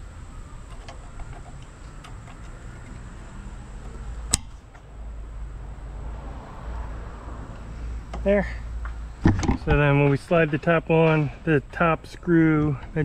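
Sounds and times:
clip nut clicking: 4.3 - 4.9.

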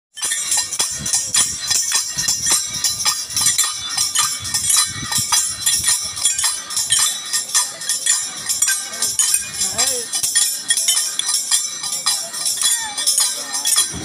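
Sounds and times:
hand cymbals clashing: 0.2 - 14.0
low thuds: 13.8 - 14.0.

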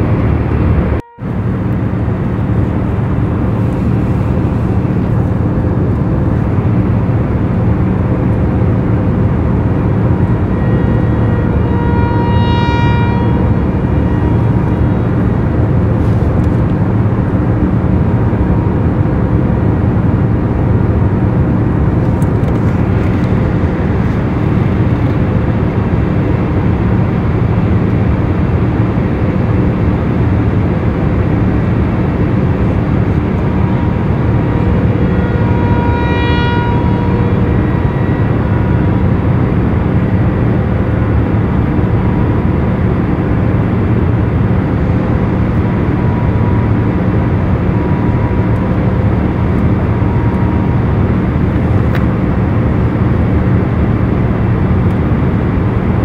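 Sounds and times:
loud mechanical roar: 0.0 - 56.0
low hum: 0.0 - 56.0
short higher tone: 10.0 - 16.2, 32.2 - 41.0.

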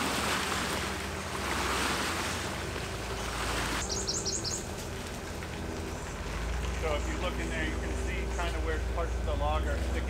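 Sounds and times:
high chirps: 3.8 - 4.6.

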